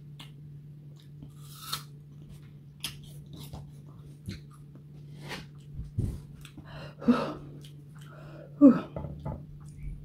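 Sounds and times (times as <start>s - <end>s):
apple chewing with crunches: 0.0s - 6.7s
steady low hum: 0.0s - 10.0s
breathy vocal gasp or hum: 6.6s - 9.0s.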